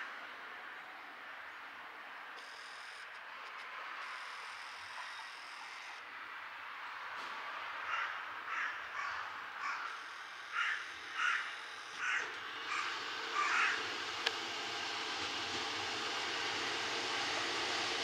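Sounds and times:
diesel railcar approaching: 0:03.1 - 0:18.0
crow cawing: 0:07.9 - 0:13.9.

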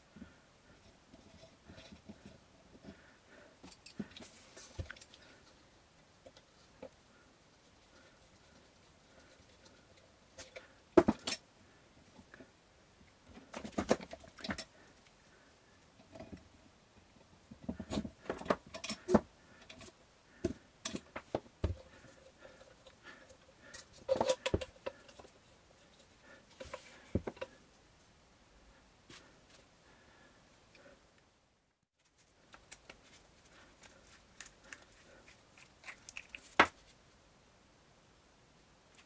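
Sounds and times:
parts and tools clattering: 0:10.4 - 0:11.4, 0:17.7 - 0:22.6, 0:23.6 - 0:25.3.

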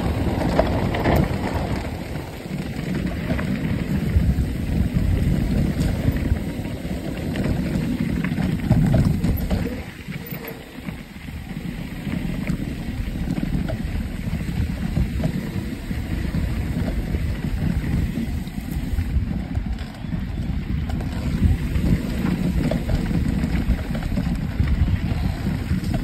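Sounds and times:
bike clicks and rattles: 0:00.0 - 0:26.0
bike tyres rumbling over dirt: 0:00.0 - 0:26.0
wind buffeting microphone: 0:00.0 - 0:26.0.

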